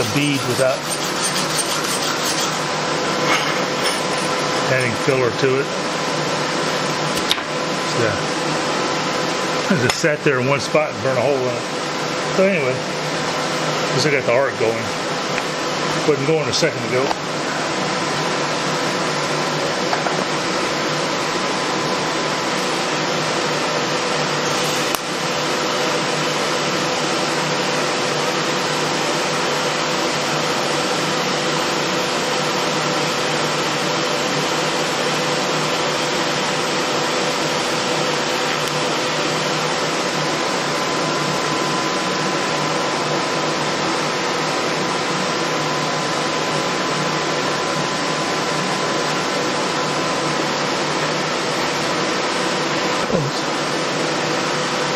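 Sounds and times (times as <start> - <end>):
welding arc hiss: 24.4 - 25.2.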